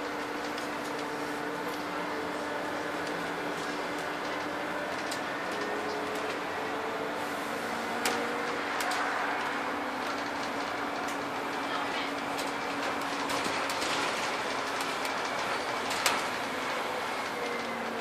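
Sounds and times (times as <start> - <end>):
bus engine whine: 0.0 - 18.0.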